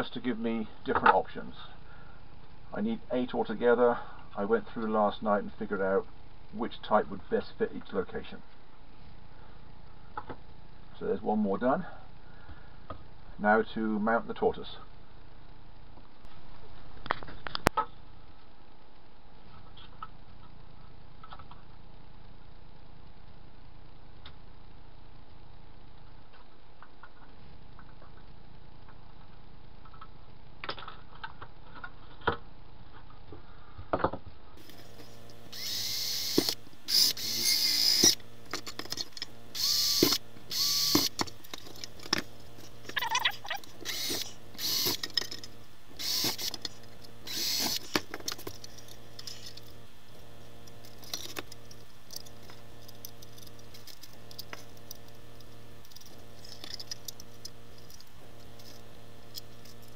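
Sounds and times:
cordless drill whining bursts: 0:34.6 - 0:38.2, 0:39.5 - 0:41.2, 0:43.0 - 0:45.0, 0:46.0 - 0:48.0
parts clicking when handled: 0:50.4 - 0:59.9.

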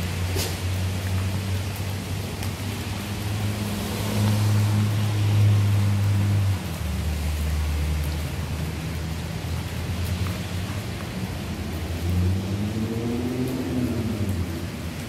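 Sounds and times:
outdoor hiss: 0:00.0 - 0:06.1.

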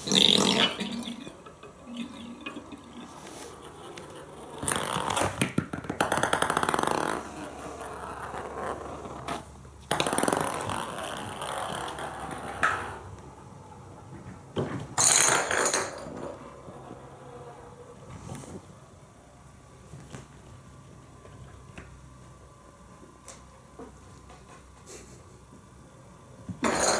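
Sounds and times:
toy balls knocking and rolling: 0:00.0 - 0:13.1, 0:14.6 - 0:17.2, 0:26.5 - 0:26.9.

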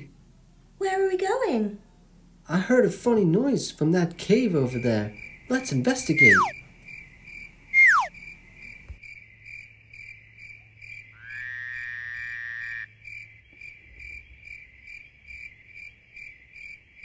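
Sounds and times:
small animal chirping: 0:06.1 - 0:06.6, 0:07.8 - 0:08.2
drawn-out high note: 0:06.2 - 0:06.5.

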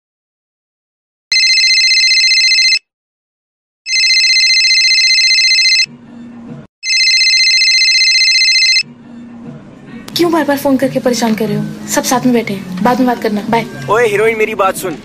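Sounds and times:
phone ringtone trilling: 0:01.3 - 0:02.8, 0:03.9 - 0:05.9, 0:06.8 - 0:08.9.

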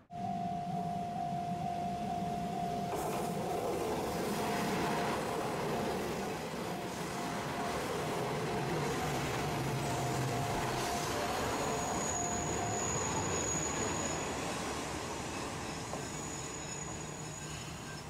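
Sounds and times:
diesel train engine humming: 0:00.0 - 0:14.6
train wheels on rails: 0:00.2 - 0:18.0
high wheel squeal: 0:09.9 - 0:18.0.

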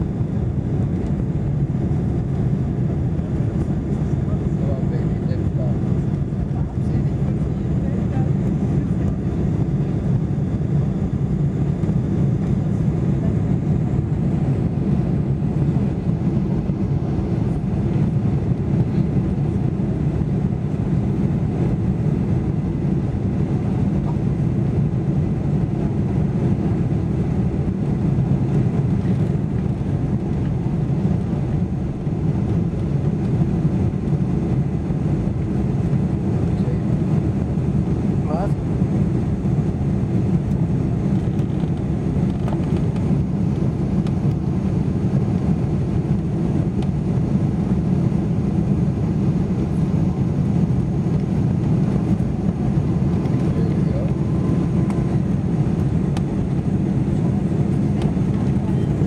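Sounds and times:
jet engines roaring in cabin: 0:00.0 - 0:59.0.

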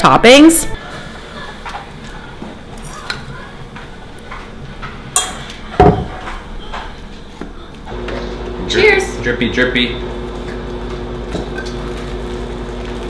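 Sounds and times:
dishes and utensils clinking: 0:00.8 - 0:07.7.

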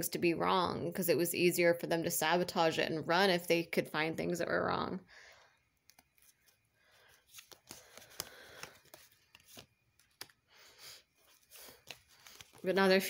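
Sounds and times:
cards rustling: 0:05.8 - 0:13.0.

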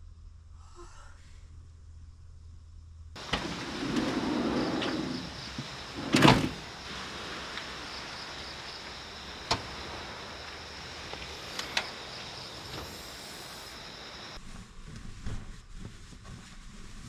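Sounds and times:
van door thump: 0:03.2 - 0:06.9
steady background hiss: 0:03.2 - 0:14.4.

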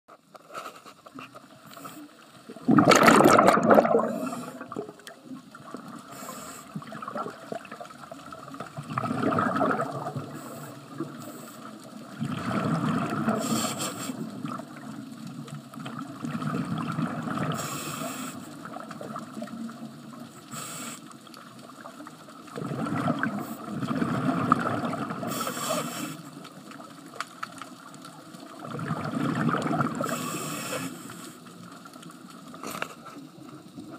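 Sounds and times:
steady water hiss: 0:00.2 - 0:33.9
underwater regulator bubbles rushing: 0:02.5 - 0:06.1, 0:06.7 - 0:11.2, 0:11.9 - 0:17.8, 0:22.4 - 0:25.7, 0:28.5 - 0:30.4.

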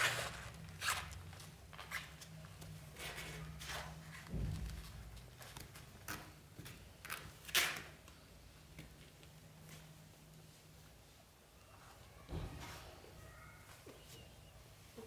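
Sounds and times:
soft low thump: 0:04.3 - 0:05.1.

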